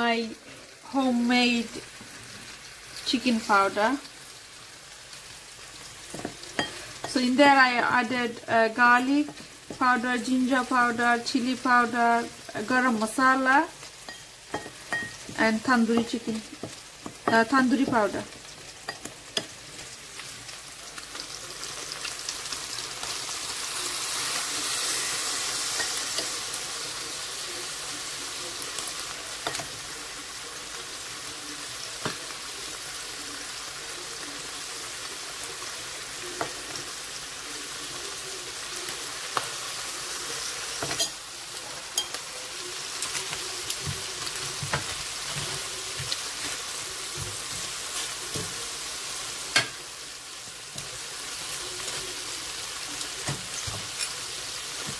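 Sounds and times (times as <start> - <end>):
chicken sizzling in a skillet: 0.0 - 54.9
metal tongs clicking on pan: 49.5 - 49.8.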